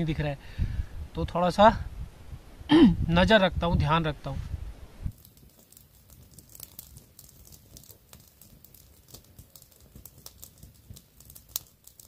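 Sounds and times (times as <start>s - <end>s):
twig fire crackling and popping: 4.8s - 12.0s.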